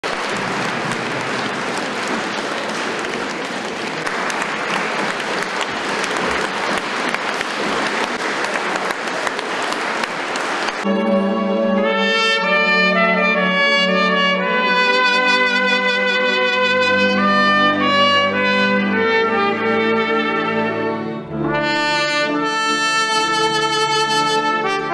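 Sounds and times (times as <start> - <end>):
audience applauding: 0.0 - 11.0
orchestra playing: 0.0 - 24.9
solo trumpet melody: 10.8 - 24.9.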